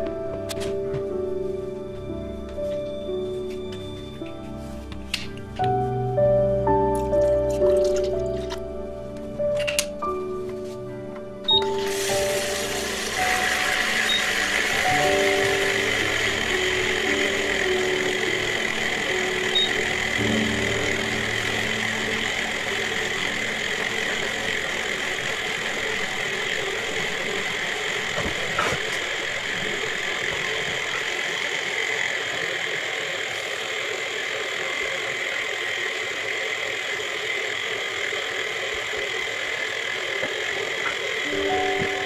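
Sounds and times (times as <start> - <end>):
milk frother motor whirring: 11.4 - 42.0.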